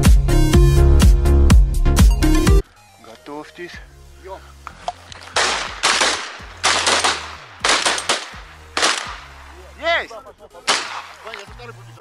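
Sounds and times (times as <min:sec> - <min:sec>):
shotgun shots: 0:05.2 - 0:09.5, 0:10.7 - 0:11.4.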